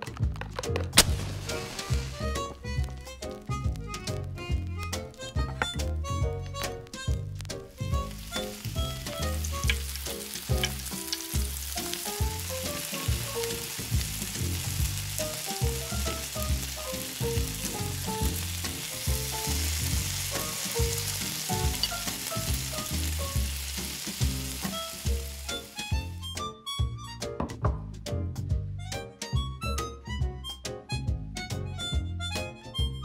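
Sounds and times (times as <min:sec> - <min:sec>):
background music: 0:00.0 - 0:33.0
batter sizzling in a frying pan: 0:01.0 - 0:04.7, 0:07.0 - 0:26.2.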